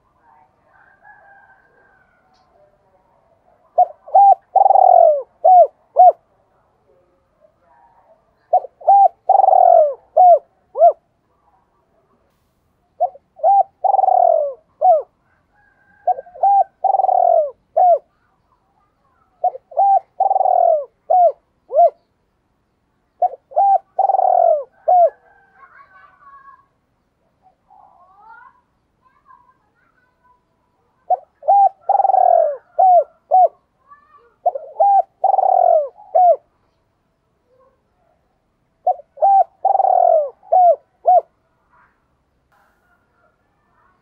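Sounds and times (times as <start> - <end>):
dove cooing: 0.0 - 6.3, 7.0 - 11.2, 13.0 - 22.1, 23.2 - 26.4, 30.9 - 36.5, 37.4 - 42.0
faint bird chirps: 0.0 - 44.0.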